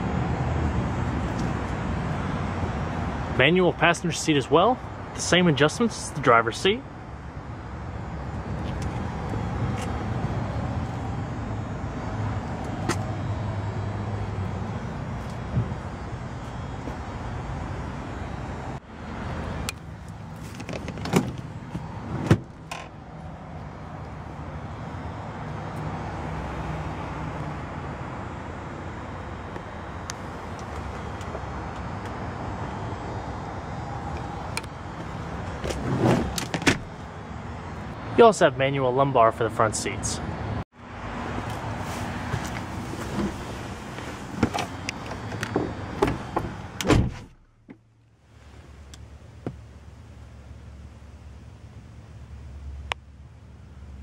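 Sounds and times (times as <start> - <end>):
motor vehicle rumbling: 0.0 - 38.4, 39.4 - 54.0
seat backrest rustling: 35.5 - 36.9, 41.8 - 47.3.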